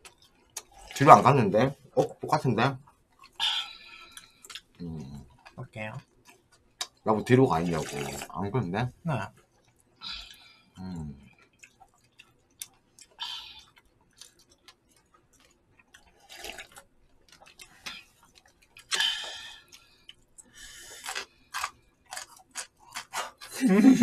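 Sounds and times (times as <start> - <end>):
mouth noises eating noodles: 7.6 - 8.3.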